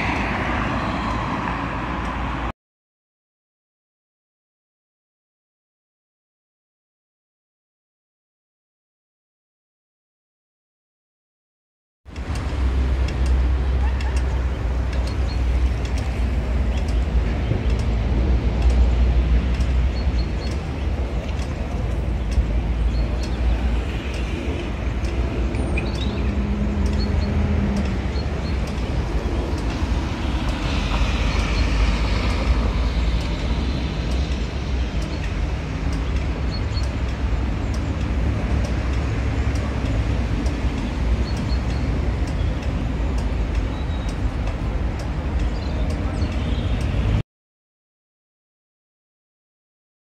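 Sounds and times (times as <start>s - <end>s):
traffic rumble: 0.0s - 2.5s, 12.1s - 47.2s
vehicle passing: 0.0s - 2.5s, 20.6s - 36.4s.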